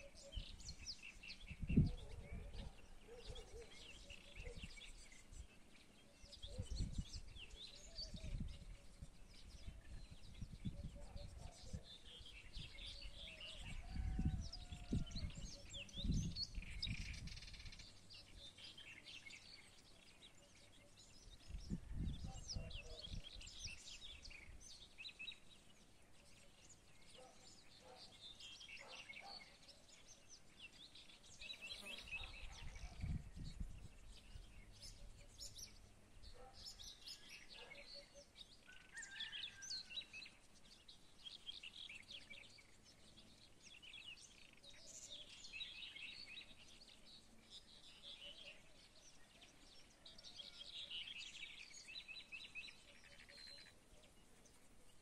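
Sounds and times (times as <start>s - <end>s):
songbirds chirping and singing: 0.0s - 55.0s
wind rumble on microphone: 0.2s - 5.6s, 6.2s - 18.4s, 21.2s - 24.8s, 32.0s - 36.4s.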